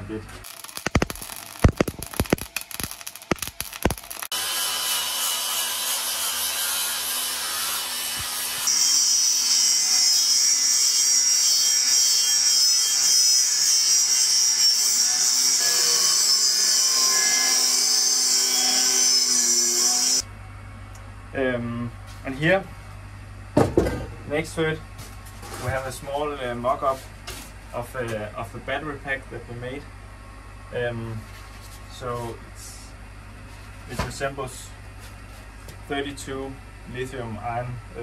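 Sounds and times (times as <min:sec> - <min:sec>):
crackling welding: 0:00.4 - 0:20.2
angle grinder cutting steel: 0:00.5 - 0:20.2.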